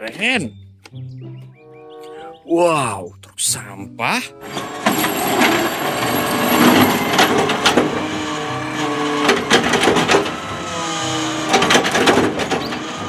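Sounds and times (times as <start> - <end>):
garbage truck engine and hydraulics: 4.3 - 13.0
sharp clunks and knocks: 4.5 - 10.5, 11.4 - 13.0.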